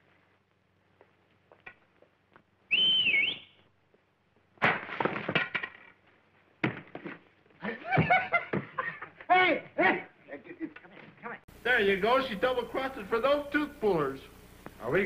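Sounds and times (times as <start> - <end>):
man's two-finger whistle: 2.7 - 3.6
clattering and knocking: 4.6 - 6.0.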